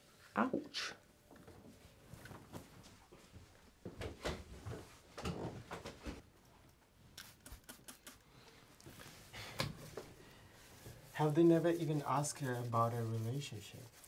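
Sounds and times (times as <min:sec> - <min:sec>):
spray bottle squirts: 0:07.2 - 0:08.2.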